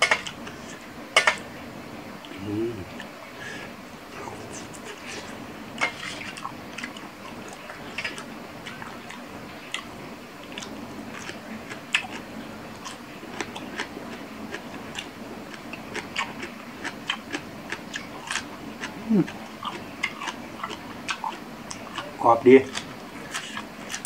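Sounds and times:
person chewing crunchy food: 10.5 - 24.0.

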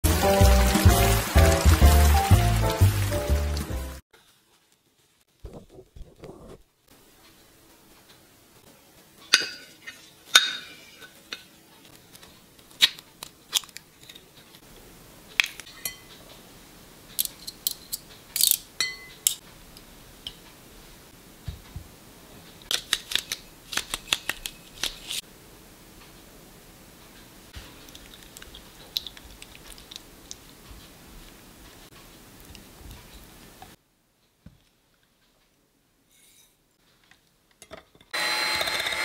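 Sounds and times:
utensils clinking on glass bowls: 15.8 - 16.2, 17.2 - 19.4.

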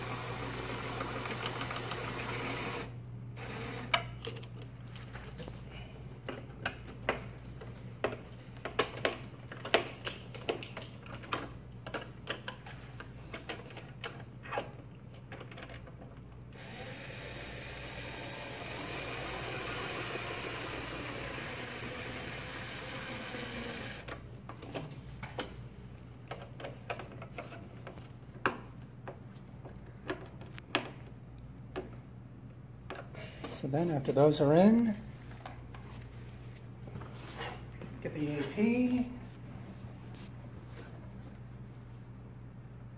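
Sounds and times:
drill driver whining: 0.0 - 4.0, 16.5 - 24.1.

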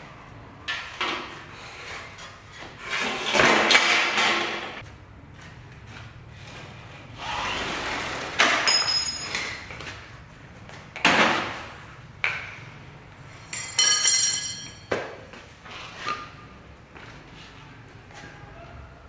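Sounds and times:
metal striking metal: 13.5 - 15.0.

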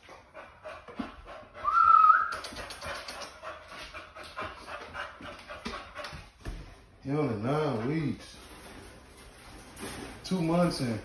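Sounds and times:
dog panting: 0.0 - 8.5
dog whining: 1.6 - 2.6.

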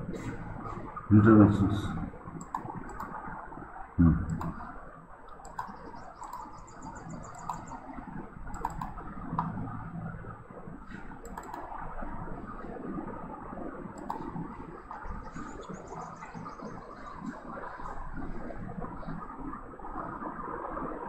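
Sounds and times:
low room hum: 0.0 - 21.0
computer mouse clicks: 2.4 - 3.2, 4.3 - 4.7, 5.3 - 7.8, 8.5 - 9.6, 10.9 - 11.7, 14.0 - 14.4.

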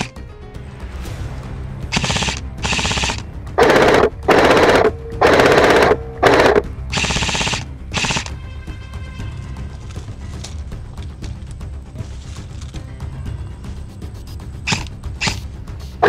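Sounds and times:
airsoft rifles firing bursts: 1.9 - 8.4, 14.7 - 15.4.

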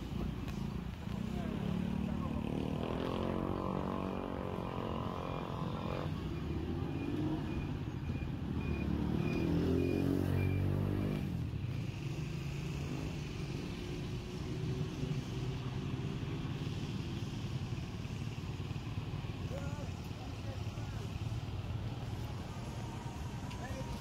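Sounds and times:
vehicle engines running: 0.0 - 24.0
loud engine passing: 8.5 - 14.0.

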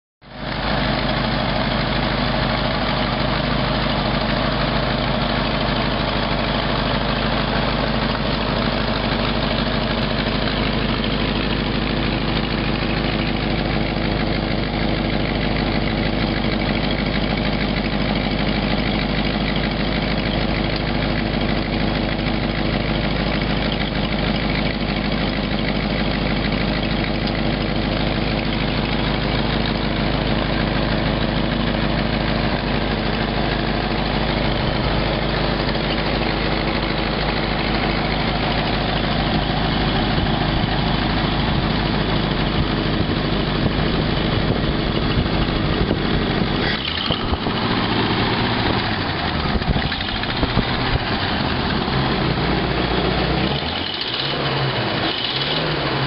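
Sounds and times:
car engine idling: 0.2 - 56.0.

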